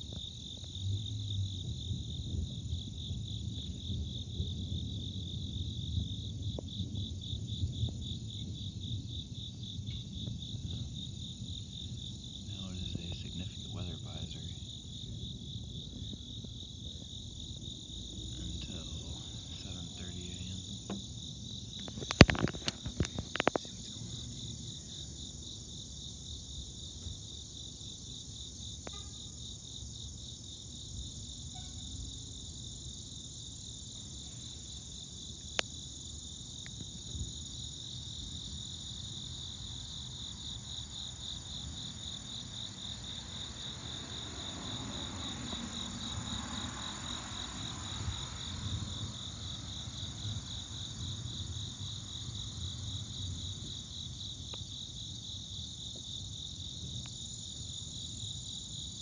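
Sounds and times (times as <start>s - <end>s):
crickets chirping: 0.0s - 59.0s
low rumble: 12.5s - 21.1s.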